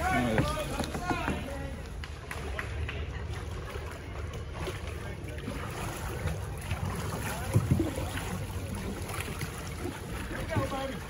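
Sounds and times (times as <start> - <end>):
paddle knocks: 0.0 - 1.6
flowing creek water: 0.0 - 11.0
paddles splashing in water: 0.0 - 11.0.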